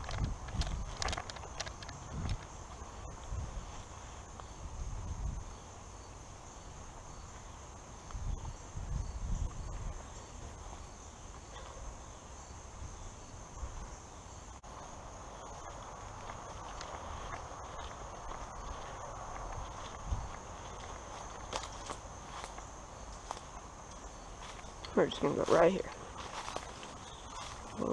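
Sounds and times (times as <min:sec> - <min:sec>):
footsteps on grass: 0:00.0 - 0:05.2, 0:14.6 - 0:27.9
high-pitched insect chorus: 0:00.0 - 0:27.9.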